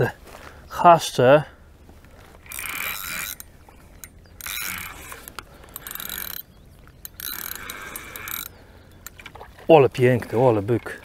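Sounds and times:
spinning reel being wound: 2.4 - 8.6.

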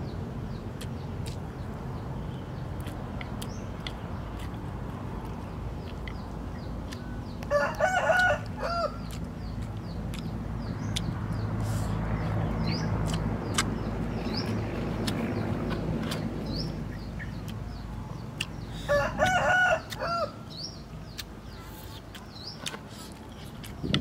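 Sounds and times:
rooster crowing: 7.5 - 9.0, 18.9 - 20.4.

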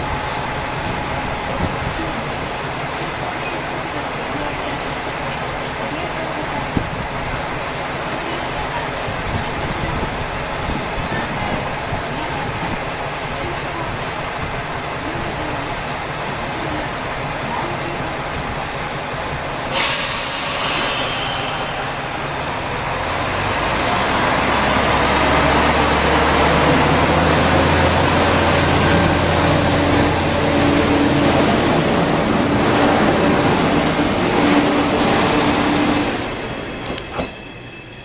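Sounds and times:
air brakes hissing: 19.7 - 22.6
diesel engine drone: 19.8 - 37.0.

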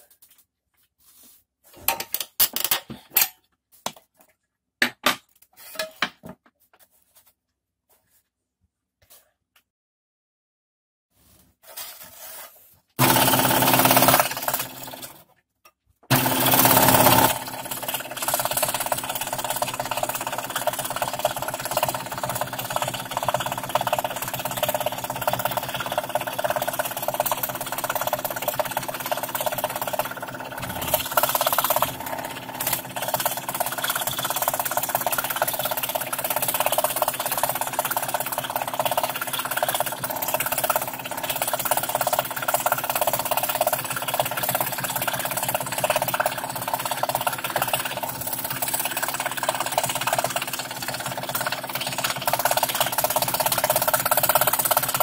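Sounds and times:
scroll saw cutting plywood: 13.0 - 15.2, 16.1 - 43.5.

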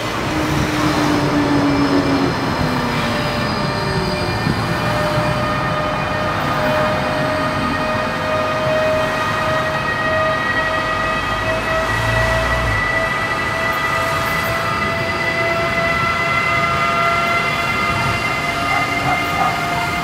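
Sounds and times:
electric locomotive whine: 0.0 - 20.0
rail rumble: 11.5 - 20.0.

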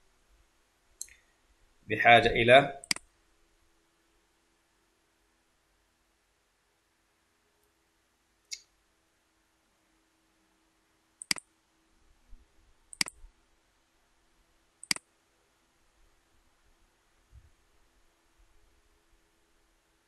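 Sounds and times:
computer mouse button clicks: 2.8 - 3.0, 11.2 - 11.4, 13.0 - 13.2, 14.8 - 15.0.

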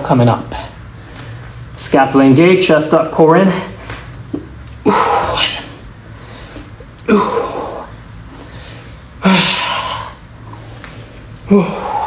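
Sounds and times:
man breathing out forcefully: 4.8 - 10.8, 11.4 - 12.0.

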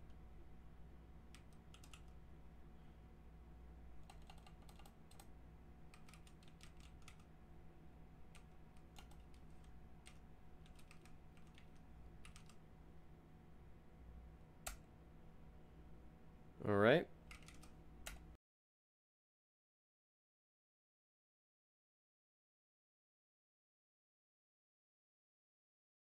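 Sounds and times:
keyboard typing: 1.3 - 2.2, 4.0 - 5.3, 5.9 - 7.3, 8.3 - 12.6, 17.2 - 18.2.

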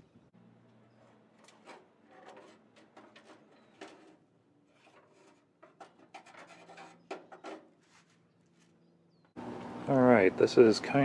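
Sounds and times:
metal scraping and rubbing: 0.9 - 8.2.

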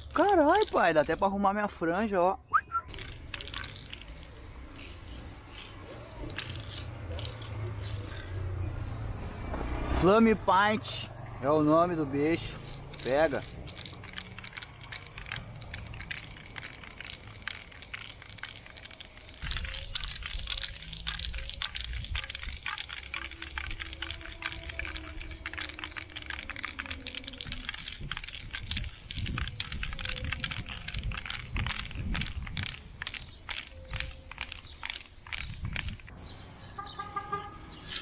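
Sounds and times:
spray can clicks and rattles: 0.0 - 1.3, 2.9 - 8.3, 12.2 - 38.0
aerosol spray can hissing: 19.4 - 25.2.

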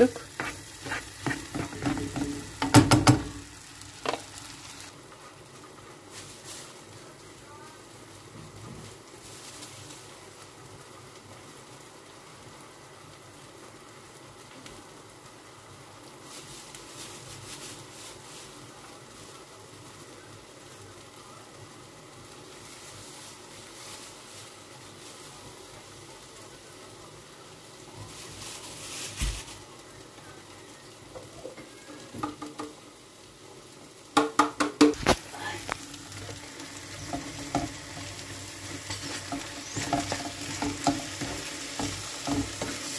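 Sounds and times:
cheese grating on box grater: 0.0 - 2.1
spatula scraping pan: 0.0 - 3.4, 37.0 - 42.9
food sizzling in a frying pan: 0.0 - 42.9
sharp knocks on pan: 1.3 - 3.4, 34.2 - 35.0.

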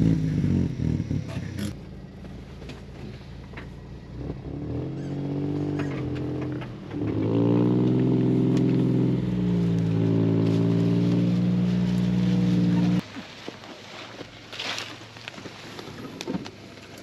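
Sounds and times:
truck engine revving: 0.0 - 2.3, 3.2 - 13.0.

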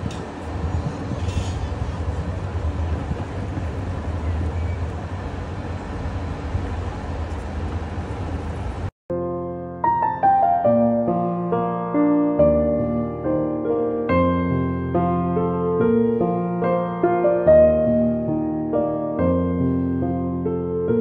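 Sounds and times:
city square rumble and hiss: 0.0 - 8.9, 11.0 - 21.0
soft piano music: 9.1 - 21.0.

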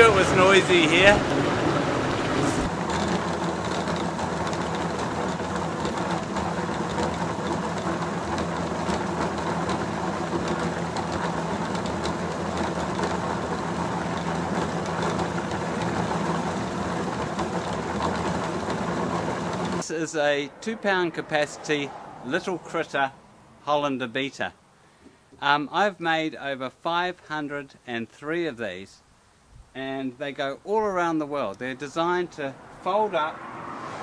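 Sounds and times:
electric motor hum: 0.0 - 19.8
beater churning fibre slurry: 0.0 - 19.9.

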